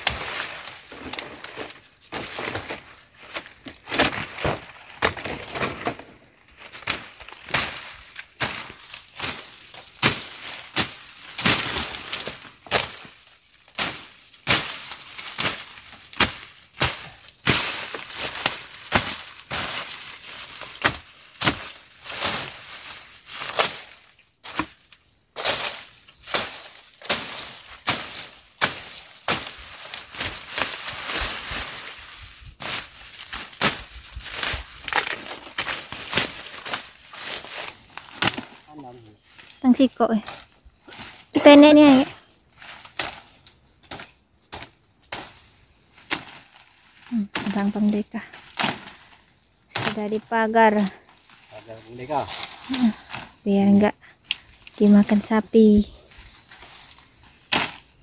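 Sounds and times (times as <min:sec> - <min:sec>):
machete chopping brush: 0:06.7 - 0:24.8, 0:25.4 - 0:32.0, 0:32.6 - 0:38.7, 0:46.0 - 0:46.4, 0:48.5 - 0:49.0, 0:49.7 - 0:50.2, 0:56.5 - 0:57.9.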